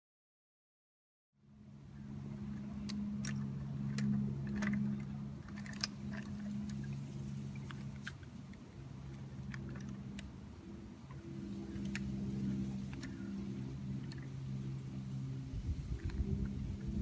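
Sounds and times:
steady low hum: 1.4s - 17.0s
toy truck clicks and scrapes: 2.8s - 6.9s.

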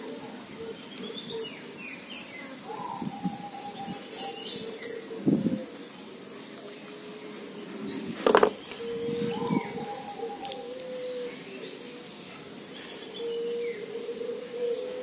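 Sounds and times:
doves cooing: 2.5s - 6.2s, 6.8s - 15.0s.

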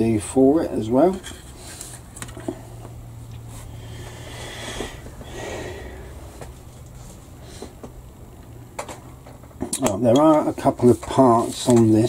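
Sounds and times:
low steady hum: 0.0s - 12.0s
person breathing out: 3.7s - 6.4s.

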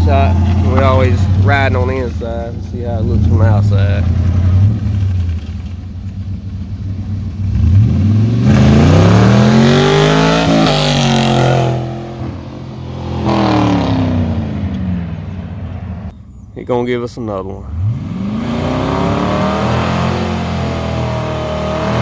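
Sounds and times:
truck engine accelerating past: 7.5s - 16.1s.

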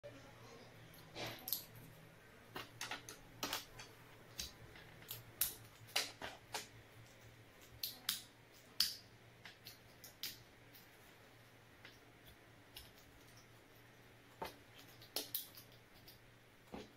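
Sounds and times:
plastic parts clicking and snapping: 1.0s - 6.7s.

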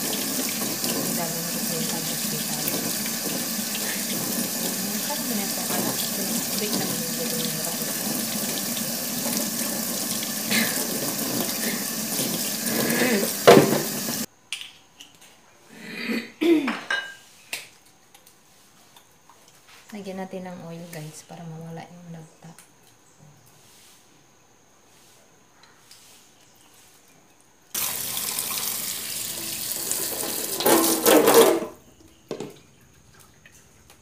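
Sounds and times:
food rinsed in a bowl: 0.0s - 14.3s, 27.8s - 34.0s
tap water running into sink: 0.0s - 14.3s, 27.8s - 34.0s.

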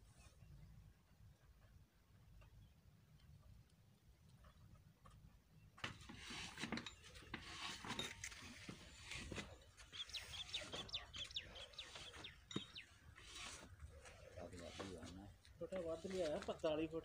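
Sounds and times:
bird chirping: 9.0s - 14.8s.

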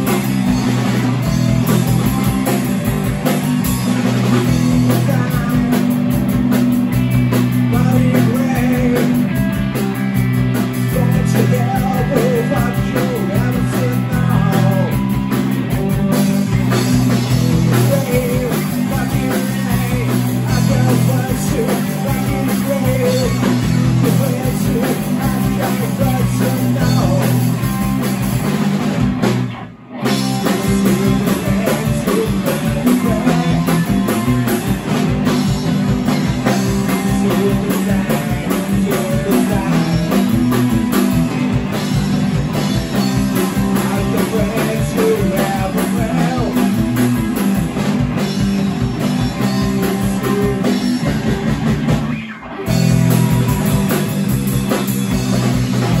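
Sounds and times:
bass guitar: 0.0s - 56.0s
drum kit: 0.0s - 56.0s
electric guitars: 0.0s - 56.0s
person singing: 4.7s - 6.1s, 7.6s - 9.4s, 10.7s - 15.2s, 17.6s - 27.8s, 30.4s - 34.7s, 36.4s - 40.9s, 42.9s - 47.2s, 49.4s - 53.4s.

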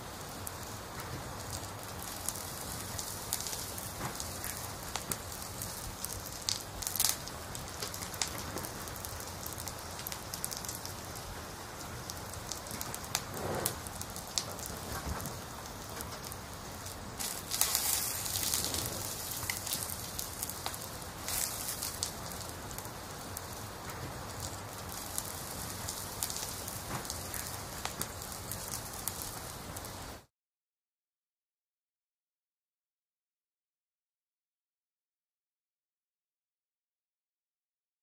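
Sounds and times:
meat sizzling in hot oil: 0.0s - 14.7s, 15.6s - 30.3s
water hissing on hot meat: 0.2s - 14.9s, 15.6s - 30.2s.

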